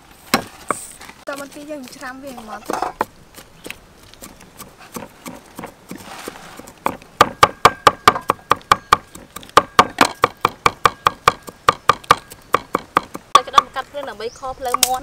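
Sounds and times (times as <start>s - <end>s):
cleaver chopping on wooden block: 2.3s - 13.8s.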